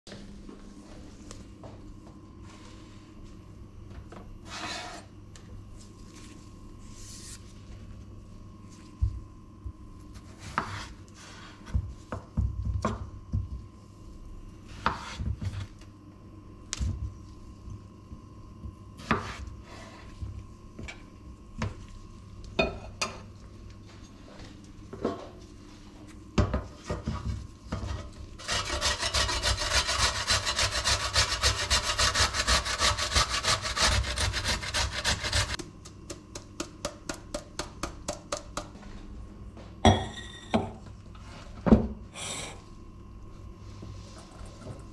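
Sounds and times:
fast rasping strokes: 28.4s - 35.6s
potato grated on metal grater: 28.4s - 35.6s
knife peeling potato: 28.4s - 36.4s.

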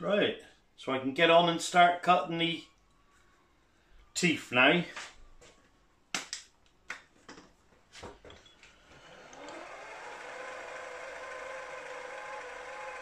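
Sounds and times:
milling machine motor whine: 8.9s - 13.0s.

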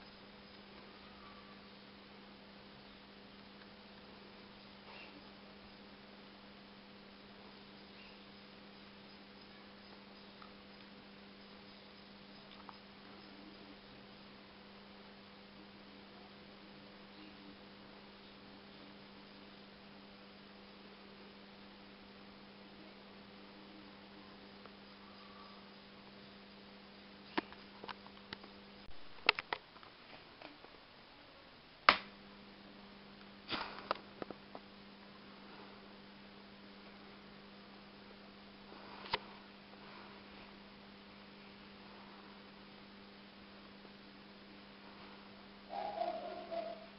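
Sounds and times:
electrical hum: 0.0s - 46.9s
sharp electrical clicks and snaps: 8.0s - 13.4s, 27.2s - 30.8s, 31.8s - 32.2s, 33.2s - 34.7s.

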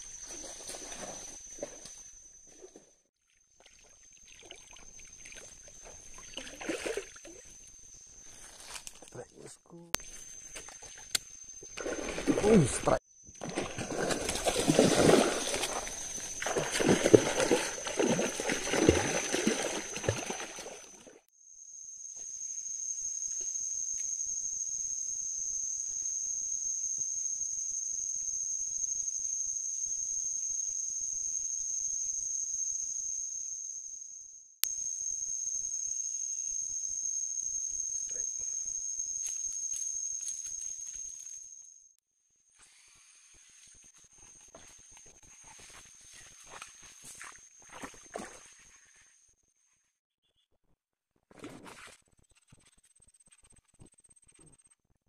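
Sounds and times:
insects droning: 0.0s - 42.0s, 42.6s - 49.3s
fish splashing in water: 11.8s - 12.8s, 13.4s - 21.2s.

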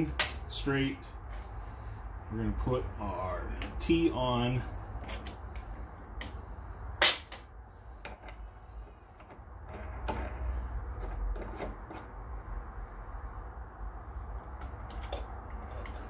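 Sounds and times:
low steady hum: 0.0s - 16.0s
metal fitting clink: 5.0s - 6.3s, 14.6s - 16.0s
metal pipe fittings clicking: 14.6s - 16.0s.

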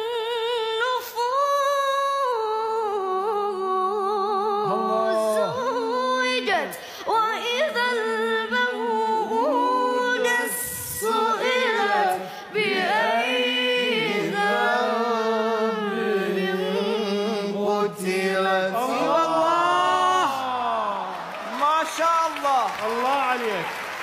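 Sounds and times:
boy reciting melodically: 4.2s - 19.5s.

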